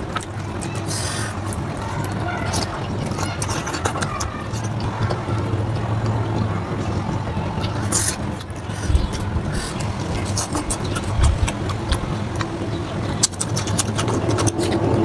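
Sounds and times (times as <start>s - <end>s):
chewing with mouth smacks: 0.0s - 15.0s
fingers squishing food: 0.0s - 15.0s
low steady hum: 0.0s - 15.0s.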